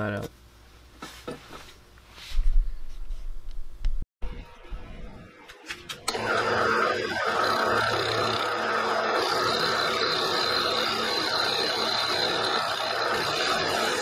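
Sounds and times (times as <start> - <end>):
milling machine cutting cast iron: 5.9 - 14.0.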